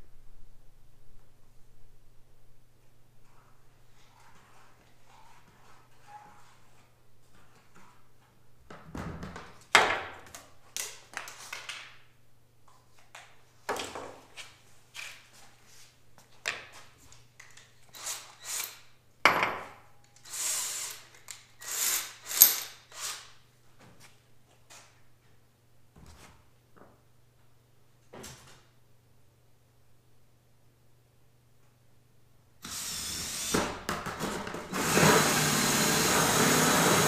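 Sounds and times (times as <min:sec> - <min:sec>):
faint electrical hum: 0:00.0 - 0:37.0
tools set down on wooden workbench: 0:19.2 - 0:19.7.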